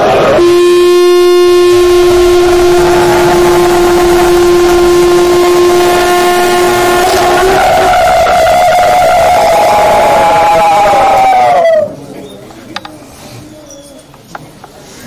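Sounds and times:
conch shell blown: 0.0 - 11.0.

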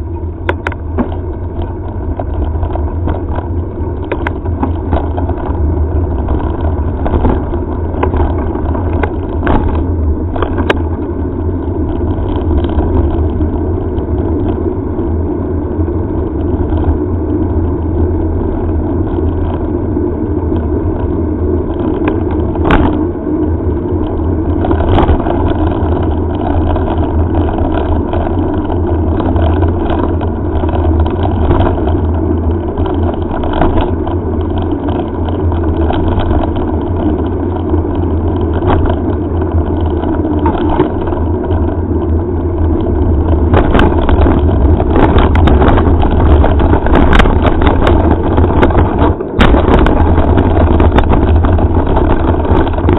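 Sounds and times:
bike knocks and rattles: 0.0 - 52.9
bike tyres rolling on asphalt: 0.0 - 52.9
wind buffeting microphone: 0.0 - 52.9.

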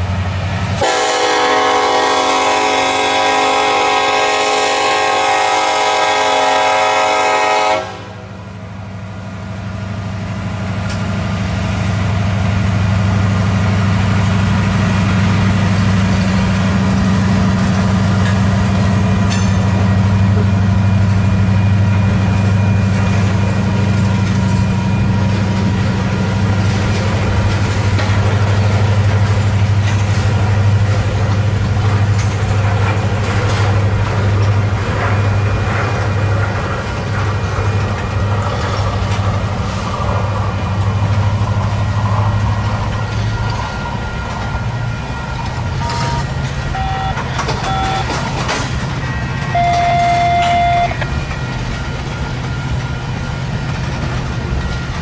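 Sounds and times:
train rumbling past: 0.0 - 55.0
locomotive air horn: 0.8 - 8.4, 45.8 - 48.2, 49.5 - 51.0.

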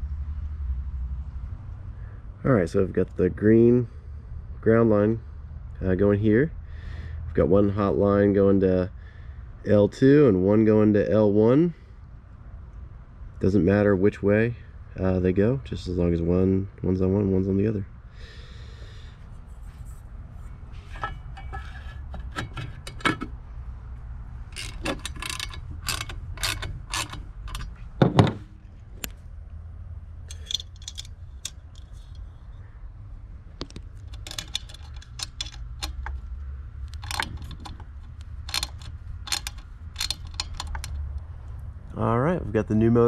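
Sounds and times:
hand screwdriver turning screws: 20.8 - 23.3, 24.5 - 27.8, 30.3 - 32.2, 33.6 - 36.3, 36.9 - 41.0
plastic clicks and rattles: 33.6 - 41.2.

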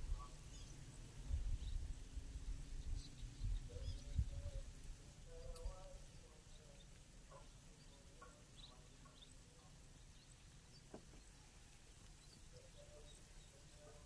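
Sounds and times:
faint bird chirps: 0.0 - 14.0
faint click: 5.5 - 5.7.

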